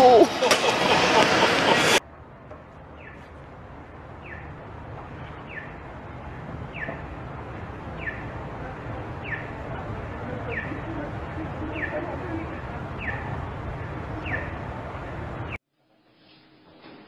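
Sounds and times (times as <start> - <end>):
low street rumble: 0.0 - 15.6
high falling chirp: 7.9 - 8.4.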